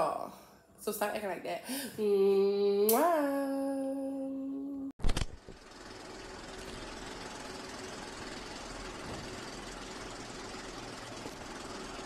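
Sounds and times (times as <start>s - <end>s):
film projector whirring rattle: 5.1s - 12.0s.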